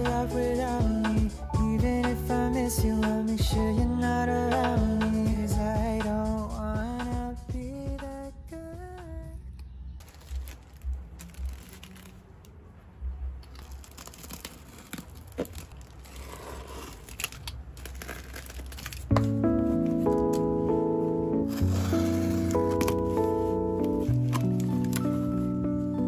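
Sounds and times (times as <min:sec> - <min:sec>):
background music: 0:00.0 - 0:10.2, 0:19.0 - 0:26.0
plastic mailer tearing and crinkling: 0:10.0 - 0:12.6, 0:13.4 - 0:20.5, 0:21.5 - 0:25.6.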